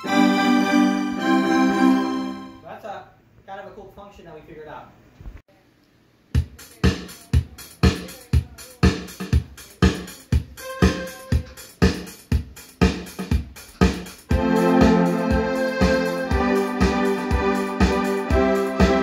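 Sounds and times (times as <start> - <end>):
electronic keyboard music: 0.0 - 2.6, 9.6 - 19.0.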